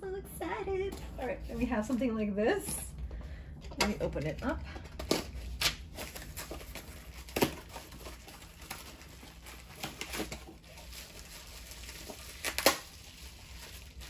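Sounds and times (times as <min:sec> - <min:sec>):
packaging rustling: 0:04.8 - 0:14.0.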